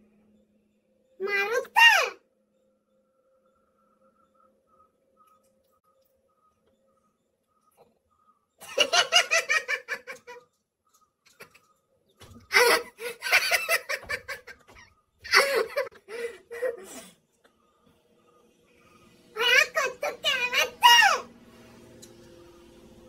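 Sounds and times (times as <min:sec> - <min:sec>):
man laughing: 0:08.6 - 0:10.4, 0:12.6 - 0:16.9.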